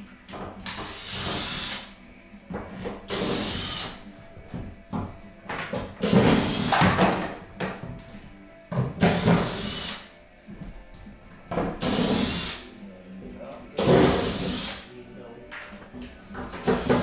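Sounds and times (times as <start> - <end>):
electric screwdriver whirring: 0.9 - 1.9, 3.1 - 4.0, 9.1 - 10.1, 11.8 - 12.6.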